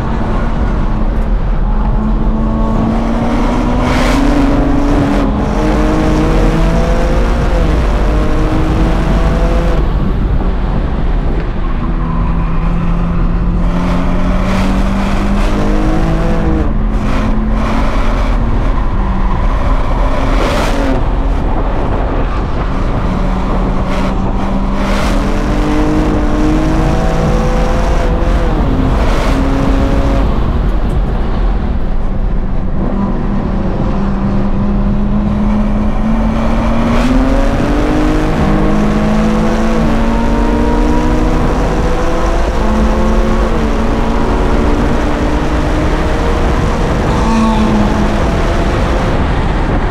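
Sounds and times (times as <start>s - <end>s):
car engine revving: 0.0s - 49.9s
tyre and road rumble: 0.0s - 49.9s.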